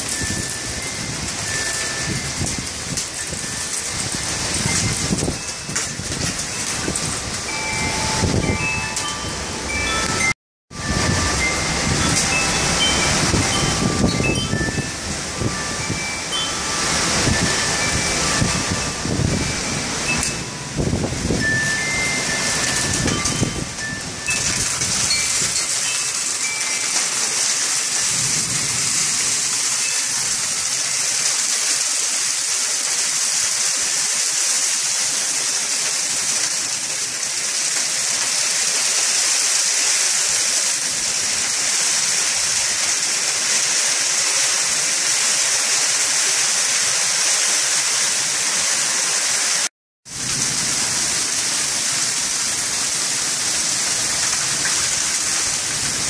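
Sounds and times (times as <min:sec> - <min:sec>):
wind gusts rumbling: 0:00.0 - 0:25.7
heavy rain pouring: 0:00.0 - 0:56.0.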